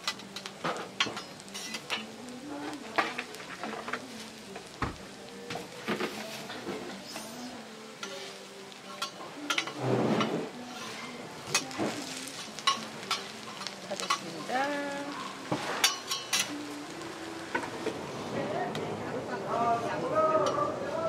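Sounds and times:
pancakes sizzling in oil: 0.0s - 18.5s
metal spatula scraping griddle: 9.5s - 14.3s.

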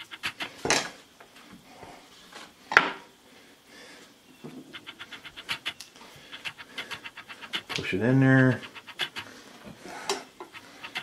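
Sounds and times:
light rubbing: 0.0s - 0.8s, 4.6s - 9.5s, 10.4s - 11.0s
small ticks: 4.8s - 7.9s, 8.6s - 9.3s.

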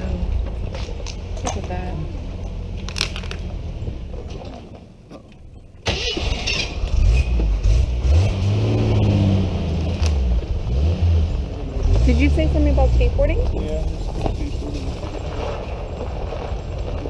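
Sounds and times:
car engine revving: 5.9s - 16.8s.

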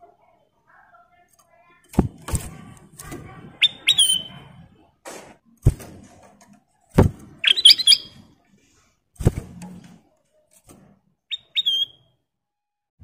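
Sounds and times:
bird thumping in cage: 1.9s - 3.4s, 5.1s - 8.1s, 9.2s - 10.0s
bird whistling: 3.6s - 4.4s, 7.4s - 8.2s, 11.3s - 12.1s
chirpy whistled bird notes: 3.6s - 4.5s, 7.4s - 8.2s, 11.3s - 12.1s.

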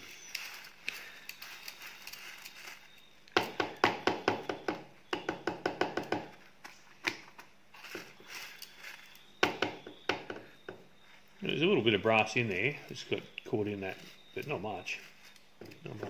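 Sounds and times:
metal shavings crackling: 0.0s - 3.9s, 7.7s - 16.0s.

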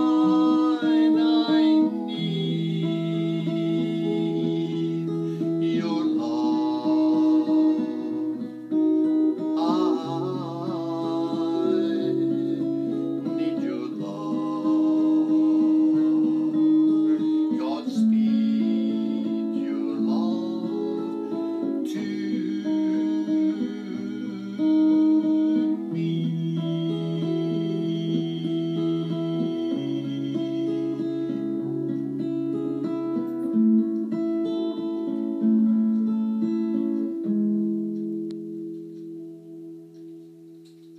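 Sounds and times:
man singing into a microphone: 0.0s - 31.5s
acoustic guitars strumming: 0.0s - 40.9s.

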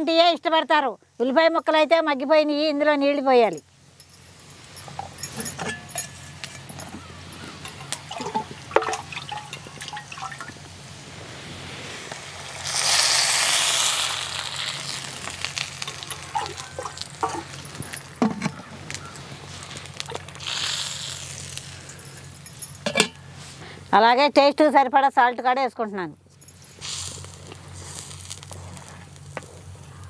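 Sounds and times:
water pouring into pot: 7.6s - 10.6s, 12.1s - 17.8s.

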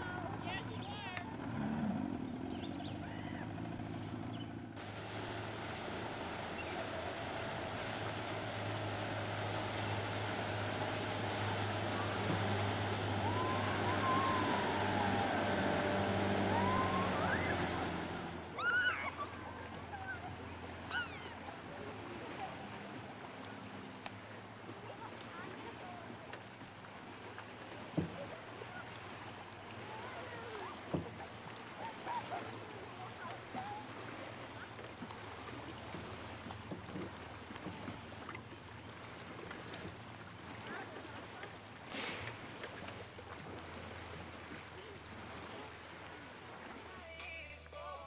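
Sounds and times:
low steady hum: 0.0s - 48.0s
motorboat engine whining: 0.0s - 48.0s
water lapping against inflatable: 0.0s - 48.0s
high yell: 13.2s - 17.6s
faint children's voices: 24.6s - 26.5s, 29.8s - 35.0s.

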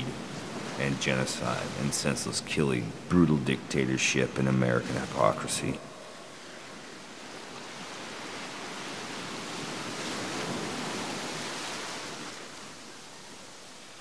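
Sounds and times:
surf washing onto beach: 0.0s - 13.9s.

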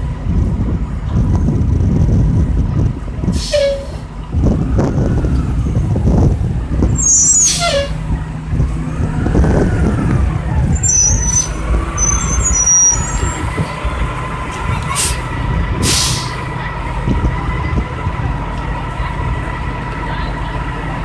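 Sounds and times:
bus engine whine: 0.0s - 21.0s
air hiss bursts: 15.8s - 16.4s.

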